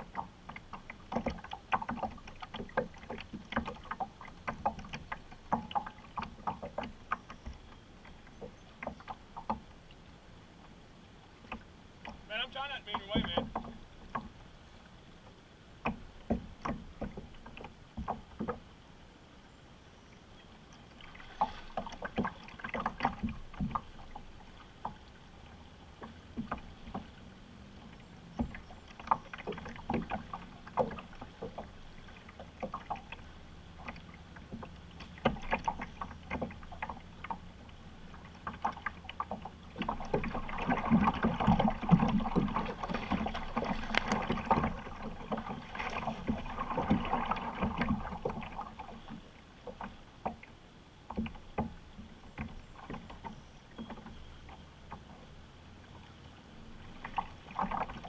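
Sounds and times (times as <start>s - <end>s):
water lapping against boat: 0.0s - 58.0s
knocks and clicks of fishing tackle: 12.8s - 14.4s, 15.8s - 18.6s.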